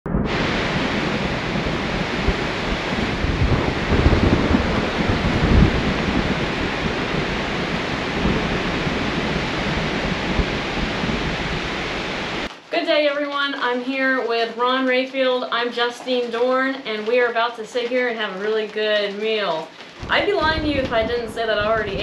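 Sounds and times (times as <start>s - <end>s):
low rumbles of thunder: 0.1s - 12.5s, 19.9s - 22.0s
steady rain: 0.1s - 22.0s.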